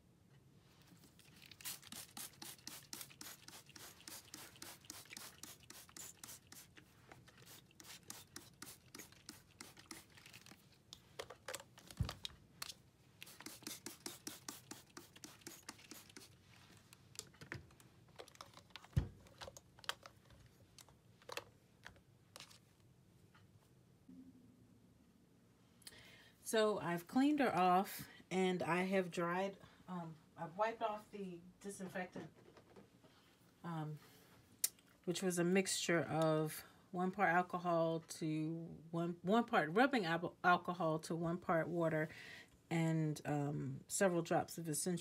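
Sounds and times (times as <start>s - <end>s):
spray bottle squirts: 1.2s - 10.6s, 12.6s - 16.4s.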